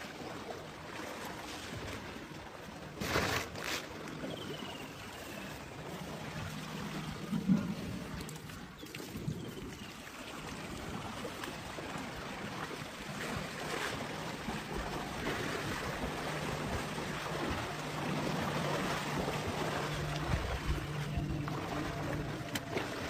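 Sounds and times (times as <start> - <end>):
water sloshing and splashing: 0.0 - 23.0
low steady hum: 11.8 - 23.0
wind buffeting microphone: 13.2 - 23.0.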